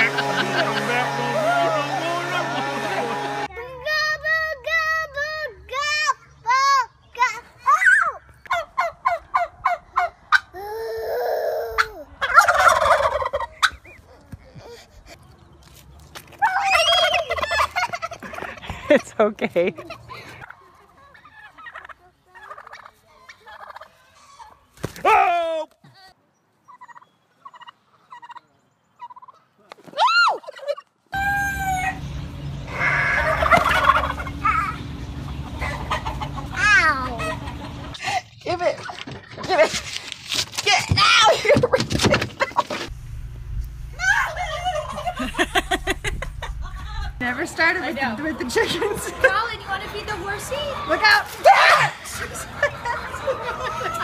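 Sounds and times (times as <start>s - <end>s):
poultry clucking: 0.0s - 3.5s, 8.4s - 10.5s, 11.8s - 14.5s, 19.8s - 24.7s, 26.7s - 29.4s, 32.4s - 38.0s, 47.2s - 54.0s
turkeys gobbling: 8.4s - 10.5s, 11.8s - 14.1s, 16.4s - 18.8s, 19.8s - 24.6s, 26.7s - 29.4s, 32.6s - 38.0s, 44.0s - 47.2s, 50.3s - 54.0s
turkey call: 11.8s - 14.0s, 16.4s - 18.5s, 32.7s - 38.0s
steady low hum: 31.2s - 38.0s, 42.8s - 49.2s.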